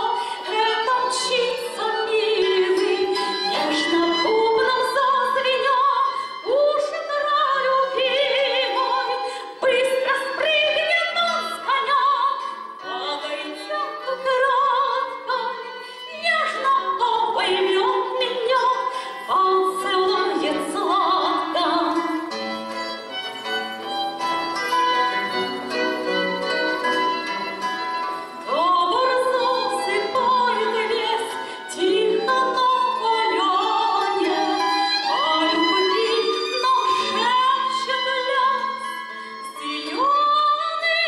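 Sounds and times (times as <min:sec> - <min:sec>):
woman singing with vibrato: 0:00.0 - 0:22.4, 0:28.4 - 0:41.0
violin: 0:00.0 - 0:41.0
acoustic guitar: 0:18.5 - 0:35.7.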